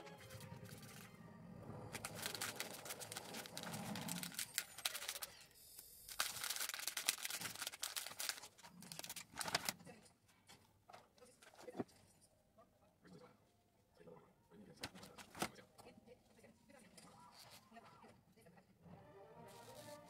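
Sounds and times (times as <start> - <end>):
paper bag rustling: 1.9 - 5.3, 6.1 - 9.8.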